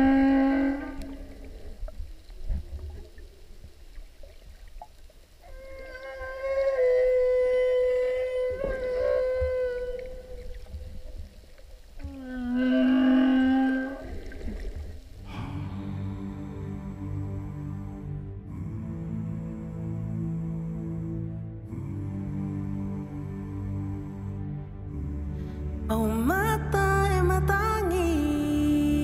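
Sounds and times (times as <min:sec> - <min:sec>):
whale moaning underwater: 0:00.0 - 0:03.4, 0:05.4 - 0:23.3
low rumble of water: 0:00.0 - 0:24.3.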